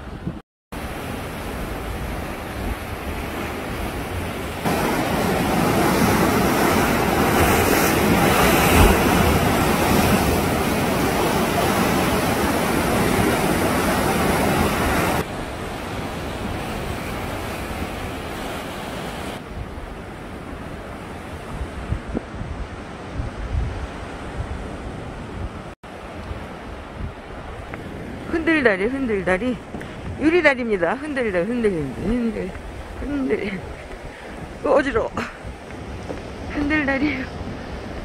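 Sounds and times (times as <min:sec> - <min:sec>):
wind on microphone: 0:00.0 - 0:38.0
surf breaking over rocks: 0:00.8 - 0:19.4.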